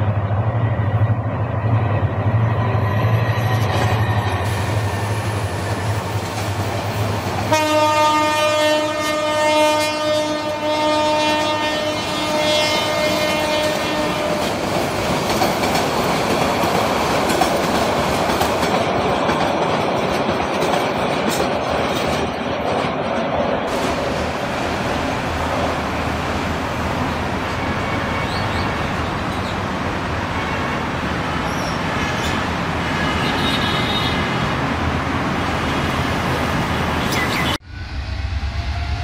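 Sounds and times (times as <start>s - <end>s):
train horn blast: 7.5s - 14.6s
train wheels clattering on rails: 13.0s - 25.1s.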